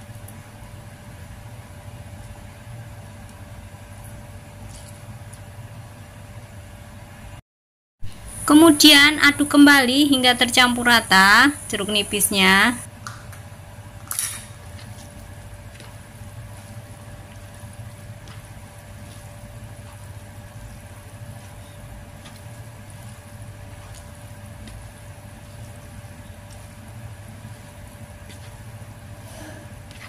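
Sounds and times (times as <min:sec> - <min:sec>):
steady low hum: 0:08.0 - 0:30.0
wet squelches: 0:14.6 - 0:30.0.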